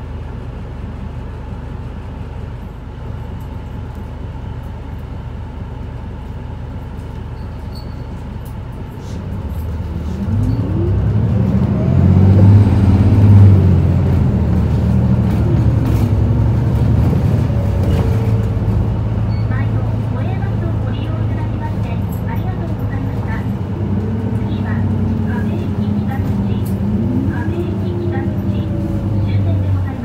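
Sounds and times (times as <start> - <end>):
bus diesel engine: 0.0 - 30.0.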